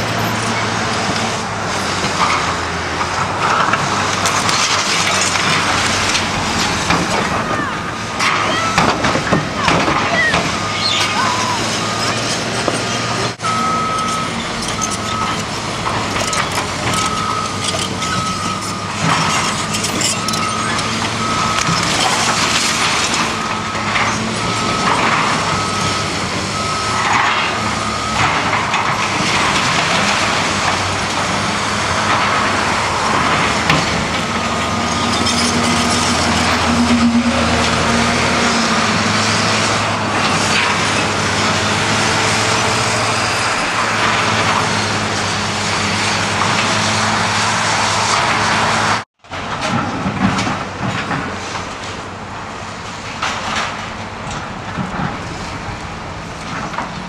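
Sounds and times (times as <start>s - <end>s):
hydraulic excavator running: 0.0s - 57.0s
back-up alarm beeping: 13.4s - 19.2s, 20.0s - 22.4s, 23.0s - 28.5s, 35.7s - 39.5s.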